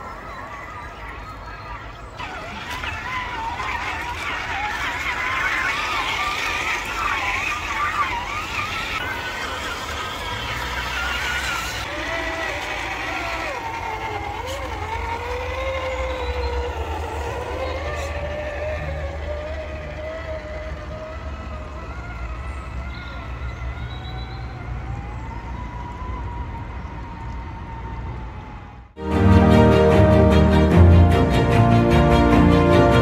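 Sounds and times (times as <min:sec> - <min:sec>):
toy car electric motor whine: 0:02.2 - 0:25.0.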